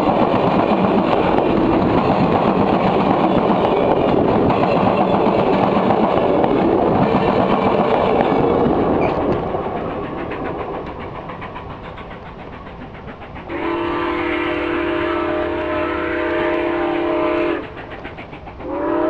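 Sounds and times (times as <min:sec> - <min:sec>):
train rumble and clickety-clack: 0:00.0 - 0:19.0
distant steam whistle: 0:13.5 - 0:18.0, 0:18.6 - 0:19.0.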